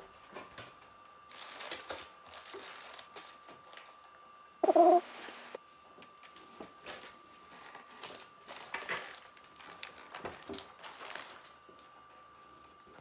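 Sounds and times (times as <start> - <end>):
foil rustling: 1.3 - 4.0, 7.5 - 11.7
faint steady high tone: 4.6 - 5.6.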